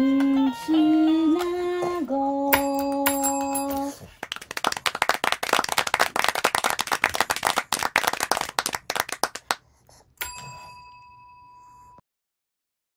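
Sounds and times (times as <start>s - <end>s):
desk bell ding: 2.6s - 3.9s, 10.2s - 12.0s
hands clapping: 2.6s - 9.6s.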